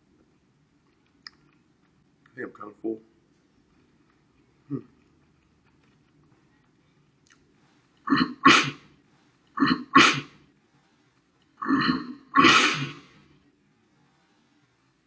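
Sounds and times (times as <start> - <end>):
man coughing harshly: 8.1 - 8.8, 9.6 - 10.3, 11.6 - 13.1.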